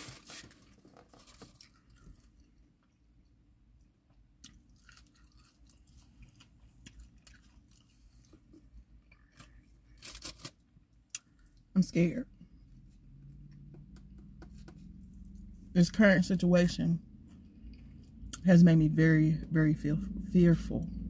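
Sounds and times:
chewing and mouth sounds: 4.4s - 9.6s.

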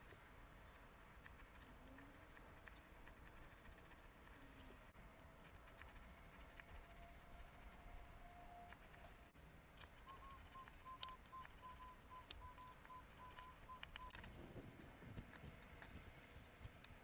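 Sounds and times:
short high beeps: 10.1s - 14.1s.

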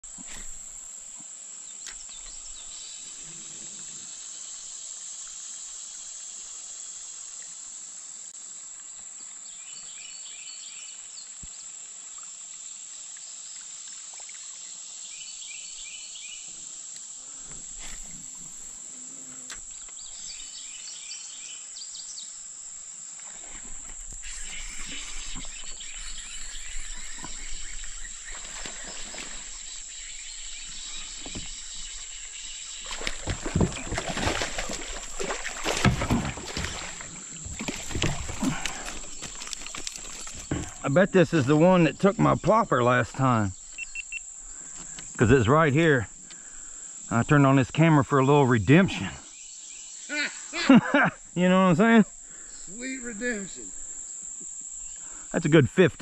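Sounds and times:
high-pitched insect chorus: 0.1s - 56.0s
kayak paddle splashing: 22.7s - 42.6s
bird chirping: 24.2s - 33.1s, 43.4s - 45.2s.

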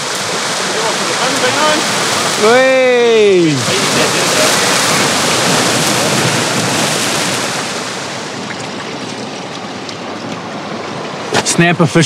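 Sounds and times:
surf washing over rocks: 0.0s - 12.0s.

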